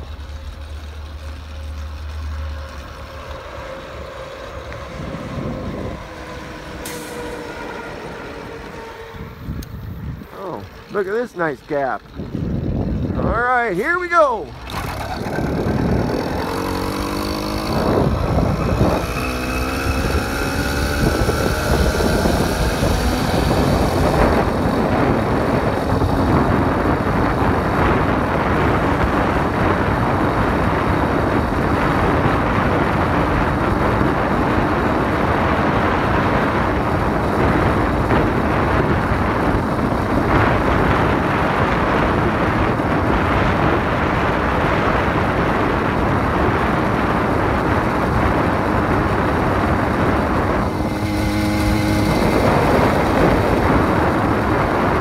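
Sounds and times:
wind noise on microphone: 0.0 - 55.0
small engine revving: 14.5 - 55.0.

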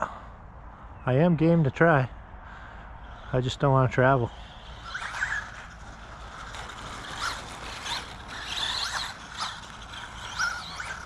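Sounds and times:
electric motor whining: 4.1 - 11.0.

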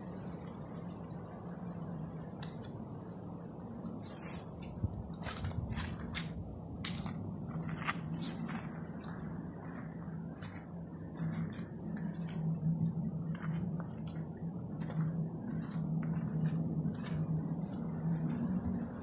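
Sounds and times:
steady low hum: 0.0 - 19.0
footsteps on wet stones: 5.2 - 19.0.

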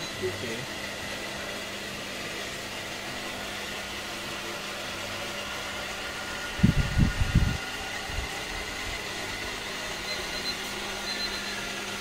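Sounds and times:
background hum in a shop: 0.0 - 12.0
faint high whine: 10.0 - 11.7.

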